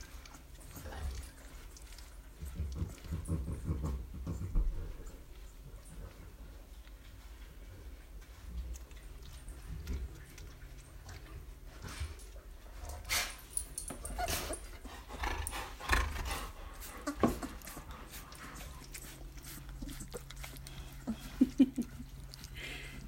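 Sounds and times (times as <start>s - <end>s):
puppies snuffling and shifting: 0.0s - 23.0s
puppy whimpers: 13.9s - 14.8s, 16.8s - 17.8s.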